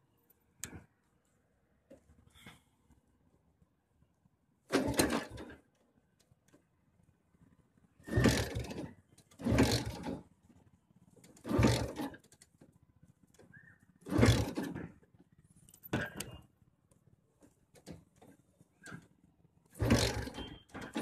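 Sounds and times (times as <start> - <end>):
motorcycle engine cranking: 4.7 - 5.7, 8.0 - 10.4, 11.2 - 12.7, 13.3 - 15.1, 17.7 - 21.0.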